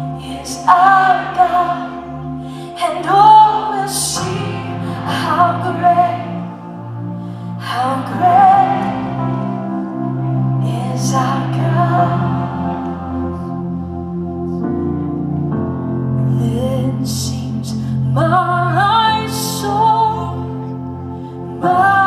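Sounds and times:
woman singing: 0:00.0 - 0:06.8, 0:07.6 - 0:09.8, 0:10.6 - 0:13.3, 0:16.3 - 0:20.8, 0:21.5 - 0:22.0
bass notes: 0:00.0 - 0:17.6
keyboard chords: 0:00.0 - 0:22.0.

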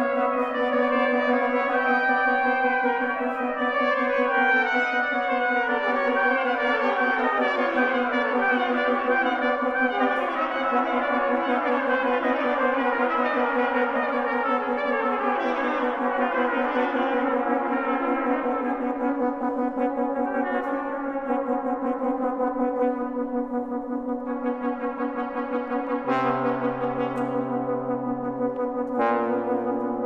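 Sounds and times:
brass quintet playing: 0:24.4 - 0:30.0.

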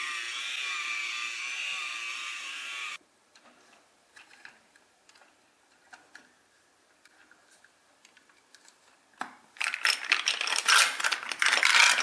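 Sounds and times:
small electric motor whining: 0:00.0 - 0:03.0
plastic toy parts clicking: 0:09.6 - 0:12.0.

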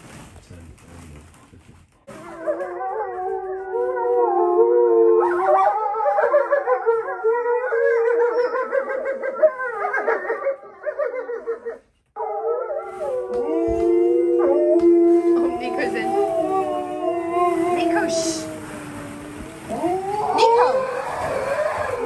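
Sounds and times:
dogs howling: 0:02.1 - 0:22.0.

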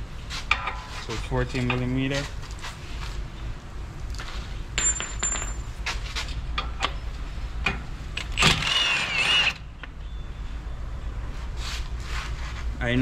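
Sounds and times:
metal tools clinking: 0:04.8 - 0:05.8
impact wrench whining: 0:08.2 - 0:09.7.

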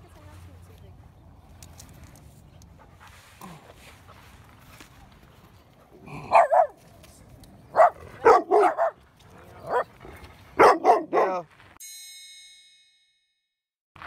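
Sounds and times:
dog barking: 0:06.3 - 0:06.8, 0:07.7 - 0:09.0, 0:09.6 - 0:09.9, 0:10.6 - 0:11.4
bright ringing chime: 0:11.8 - 0:13.4.

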